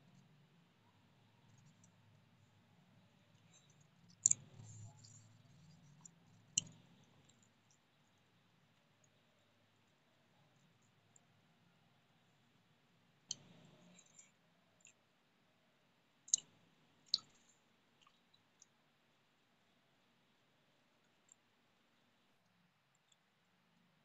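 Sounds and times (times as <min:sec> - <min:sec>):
soft squish of rice: 0:00.2 - 0:11.7, 0:16.3 - 0:19.3.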